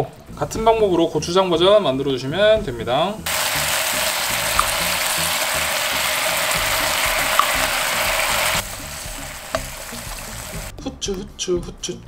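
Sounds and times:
mushrooms sizzling in a frying pan: 3.3s - 10.7s.

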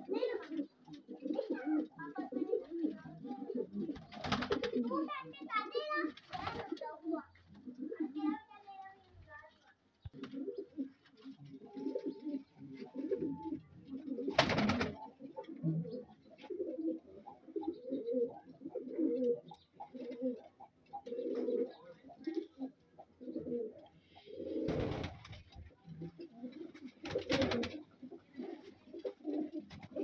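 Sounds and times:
pigeons cooing: 0.0s - 5.4s, 6.4s - 8.5s, 10.1s - 30.0s.

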